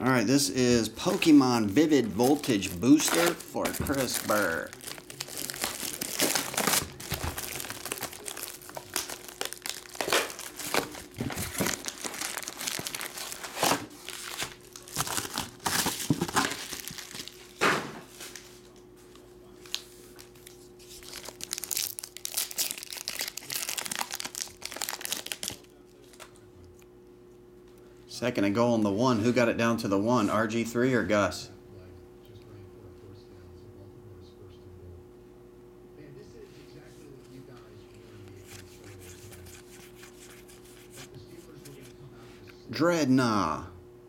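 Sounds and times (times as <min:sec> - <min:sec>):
faint steady hum: 0:00.0 - 0:44.0
foil wrapper crinkling: 0:00.6 - 0:17.6, 0:19.6 - 0:26.4
plastic wrapping crinkling and tearing: 0:00.6 - 0:17.6, 0:19.6 - 0:26.4.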